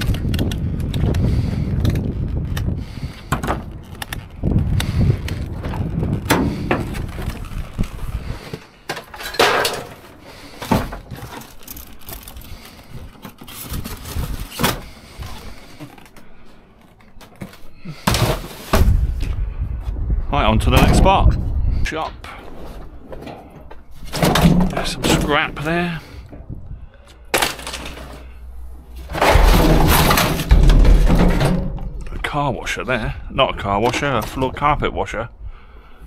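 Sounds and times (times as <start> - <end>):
knocks and clunks of handled objects: 0.0 - 19.3, 29.0 - 32.3
low rumble: 18.8 - 25.6, 28.4 - 33.6.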